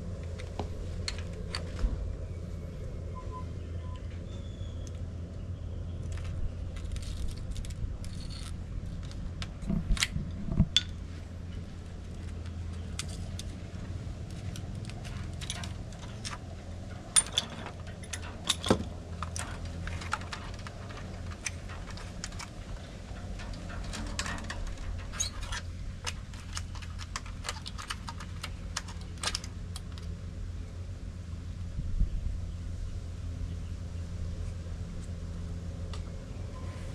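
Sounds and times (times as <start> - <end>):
steady low hum: 0.0 - 36.9
bamboo strips clicking and scraping: 6.0 - 30.2.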